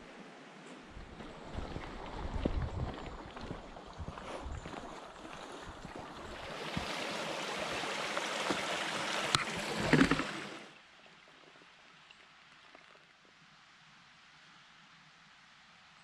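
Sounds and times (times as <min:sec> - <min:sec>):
stream trickling over stones: 0:00.9 - 0:13.4.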